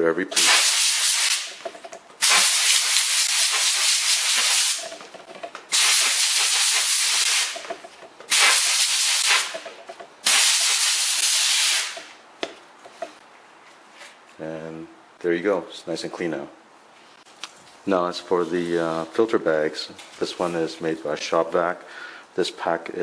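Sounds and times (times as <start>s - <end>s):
compressed air blasts: 0.4s - 1.6s, 2.2s - 5.0s, 5.7s - 7.7s, 8.3s - 12.2s.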